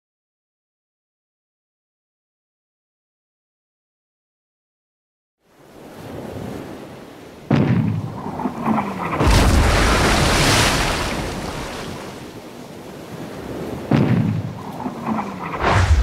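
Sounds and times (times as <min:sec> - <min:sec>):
sea and wind: 0:05.4 - 0:16.0
cannon boom: 0:15.6 - 0:16.0.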